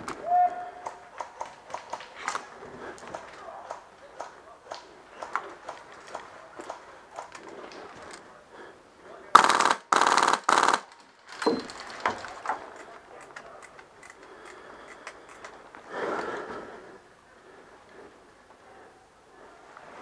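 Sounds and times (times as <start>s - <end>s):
airsoft gun full-auto bursts: 9.4s - 11.0s.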